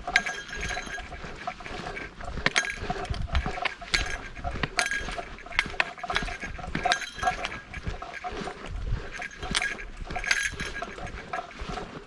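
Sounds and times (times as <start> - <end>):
small metal bell jingling: 0.0 - 12.0.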